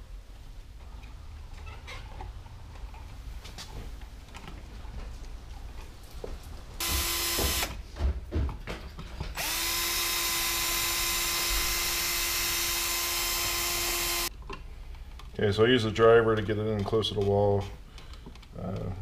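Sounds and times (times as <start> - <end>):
cordless drill driving screws: 6.8 - 7.8, 9.4 - 14.3.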